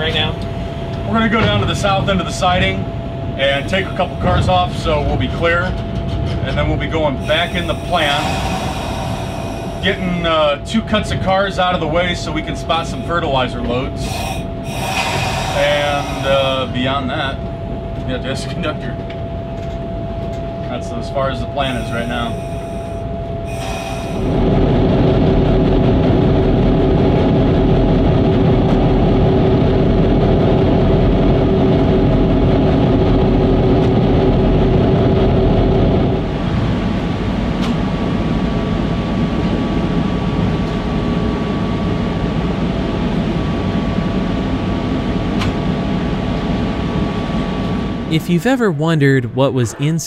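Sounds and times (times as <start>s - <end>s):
thin steady whine: 0.0s - 28.2s
diesel locomotive engine running: 0.0s - 50.0s.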